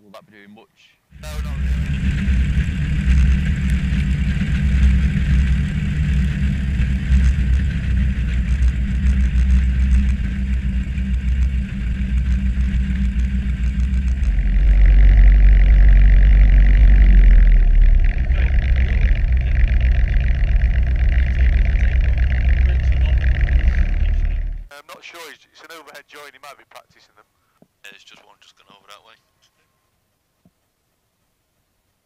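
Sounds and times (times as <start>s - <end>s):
propeller aircraft engine drone: 1.1s - 24.7s.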